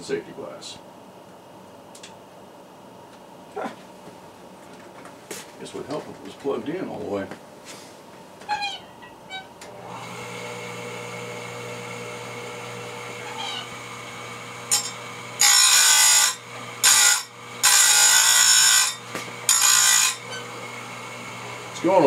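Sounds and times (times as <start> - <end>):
grinder motor humming: 9.6 - 22.0.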